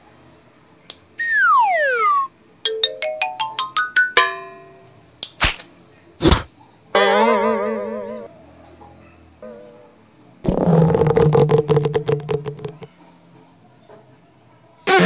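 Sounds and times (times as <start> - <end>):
whistle sliding down: 1.2 - 2.3
rising run of plucked notes: 1.2 - 4.6.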